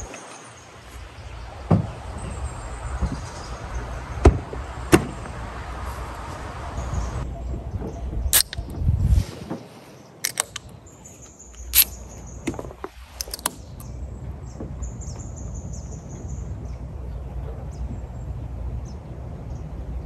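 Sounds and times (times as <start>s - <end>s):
high thin chirps: 10.2s - 12.4s
soda cans clicking on hard cover: 13.2s - 13.5s.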